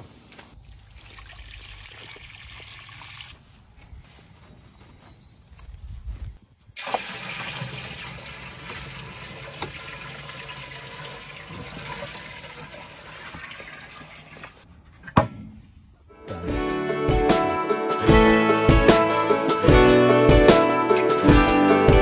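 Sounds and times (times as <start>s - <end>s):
water pouring into plastic barrel: 0.6s - 3.4s, 6.8s - 14.6s.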